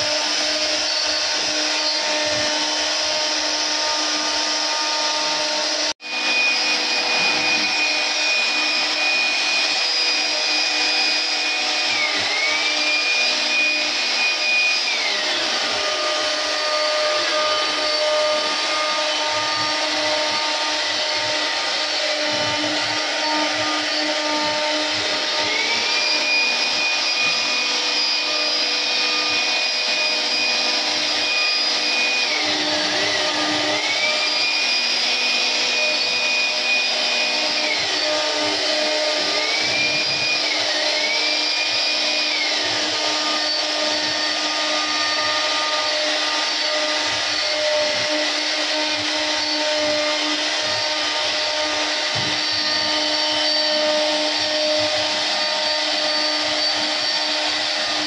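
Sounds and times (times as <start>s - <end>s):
router spindle whining: 0.0s - 58.0s
wood machining noise: 0.0s - 58.0s.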